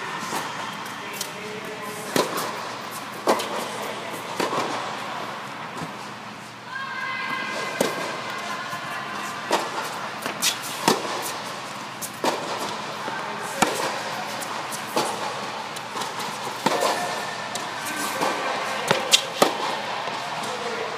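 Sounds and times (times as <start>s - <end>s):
tennis ball hit by racket: 2.1s - 2.6s, 9.5s - 11.5s, 12.2s - 12.8s, 13.5s - 20.2s
ball bouncing on hard court: 12.2s - 20.6s.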